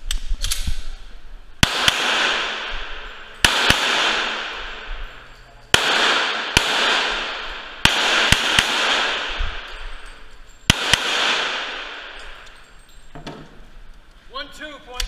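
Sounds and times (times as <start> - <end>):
pistol shots echoing indoors: 1.6 - 12.7.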